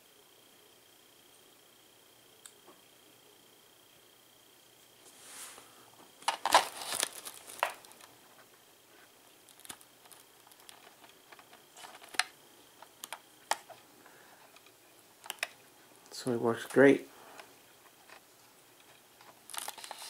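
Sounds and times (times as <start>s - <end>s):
faint high whine: 0.0s - 20.0s
rustling: 5.0s - 15.6s, 18.8s - 20.0s.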